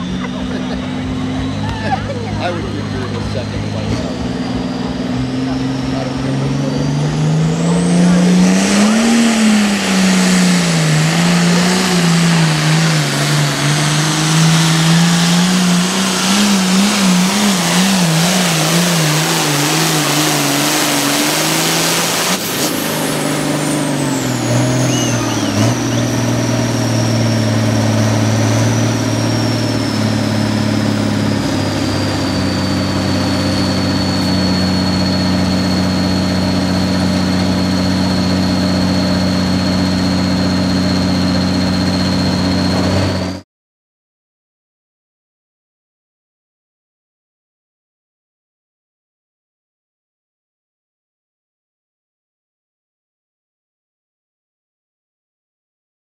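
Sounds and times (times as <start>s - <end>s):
tractor diesel engine at full throttle: 0.0s - 43.4s
high turbo whistle: 5.8s - 43.4s.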